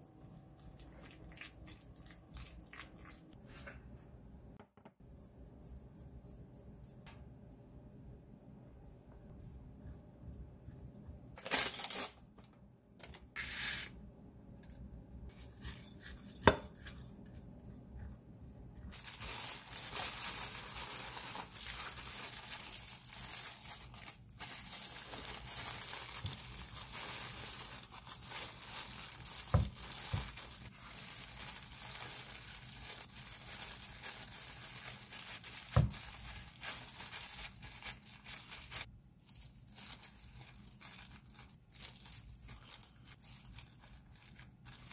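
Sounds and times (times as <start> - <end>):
plastic gloves crinkling: 11.4 - 13.9, 18.8 - 44.9.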